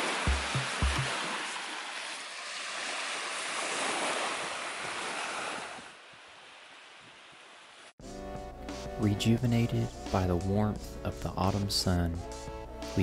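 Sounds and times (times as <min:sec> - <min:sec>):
surf washing onto sand: 0:00.0 - 0:07.5
wind: 0:00.0 - 0:08.0.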